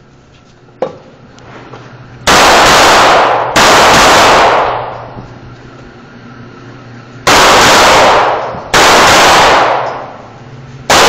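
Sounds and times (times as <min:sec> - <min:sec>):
rapid pistol fire indoors: 0:02.2 - 0:05.2, 0:07.2 - 0:11.0.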